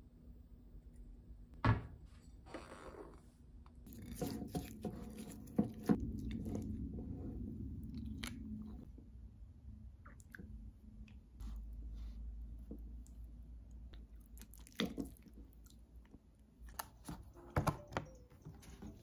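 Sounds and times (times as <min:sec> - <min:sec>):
spoon clinking and scraping bowl: 0:03.9 - 0:06.5.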